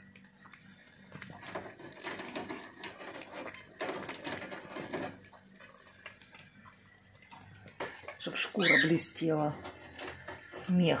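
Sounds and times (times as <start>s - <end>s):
cat chewing and smacking: 0.0s - 8.1s.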